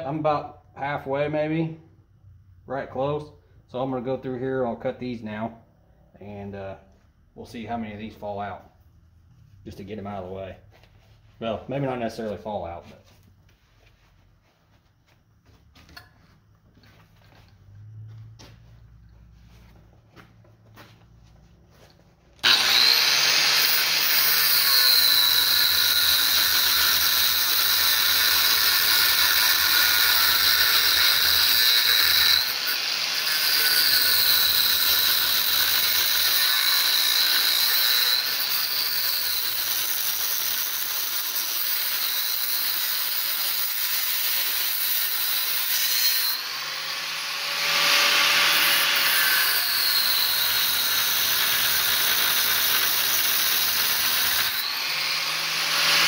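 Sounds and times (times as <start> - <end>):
angle grinder cutting metal: 22.4 - 56.0.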